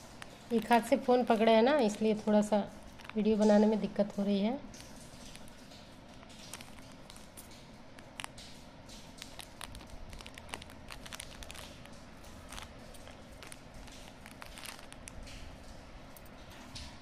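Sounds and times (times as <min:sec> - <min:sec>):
soft clicks and rustles of hands: 0:04.7 - 0:17.0.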